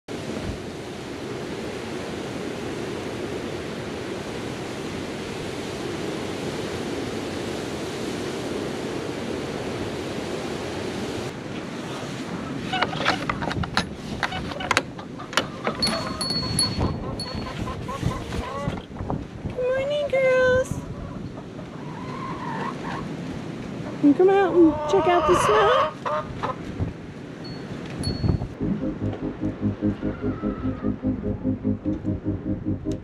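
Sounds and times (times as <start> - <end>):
wind on microphone: 15.7 - 21.4, 26.0 - 33.0.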